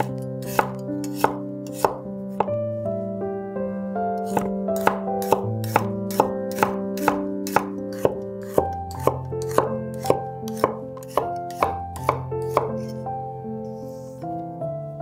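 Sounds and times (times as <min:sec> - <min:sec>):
knife chopping on cutting board: 0:00.0 - 0:02.6, 0:04.2 - 0:13.0
soft background music: 0:00.0 - 0:15.0.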